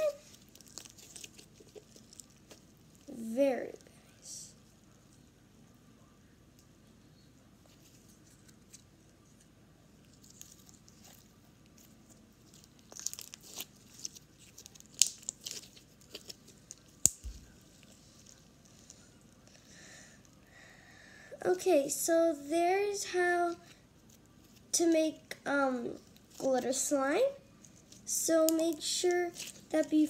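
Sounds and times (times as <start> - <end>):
slime crackling: 0.0 - 3.9, 10.1 - 19.5.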